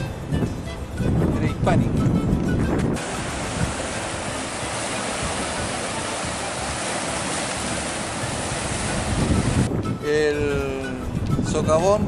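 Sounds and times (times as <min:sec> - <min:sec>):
ocean waves breaking: 0:02.8 - 0:09.7.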